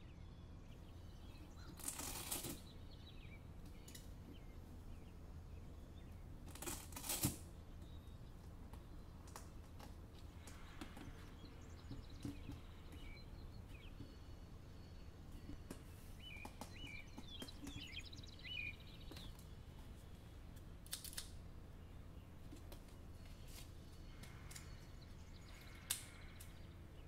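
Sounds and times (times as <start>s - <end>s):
faint bird chirps: 0.0s - 20.6s, 21.4s - 27.0s
hook-and-loop strap ripping: 1.7s - 2.6s, 6.5s - 7.5s, 20.8s - 21.4s.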